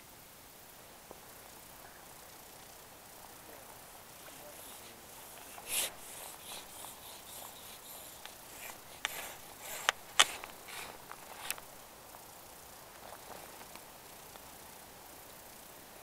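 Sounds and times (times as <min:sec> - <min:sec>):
jacket fabric rustling: 0:03.9 - 0:11.7
sharp clicks and scrapes: 0:04.2 - 0:11.7.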